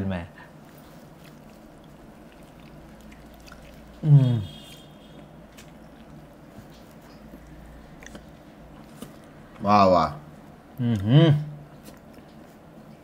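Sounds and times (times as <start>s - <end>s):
man chewing food: 0.4s - 13.0s
wet mouth clicks: 1.2s - 4.1s, 5.6s - 9.3s
man humming with full mouth: 4.0s - 4.6s, 10.8s - 11.6s.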